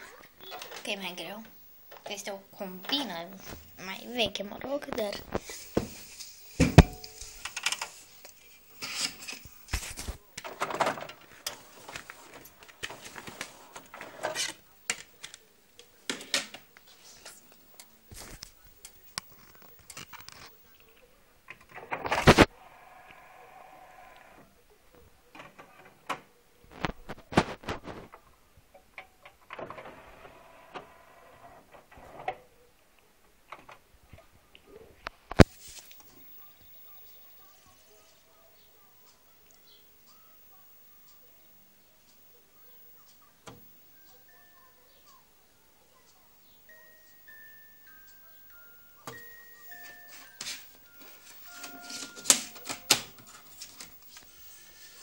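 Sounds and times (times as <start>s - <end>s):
cd changer whirring: 29.3s - 32.4s
hands handling stereo: 49.1s - 54.3s.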